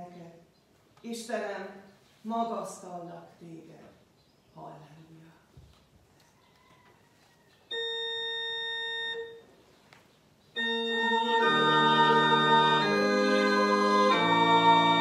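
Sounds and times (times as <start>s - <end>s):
organ chords: 7.7s - 9.4s, 10.5s - 15.0s.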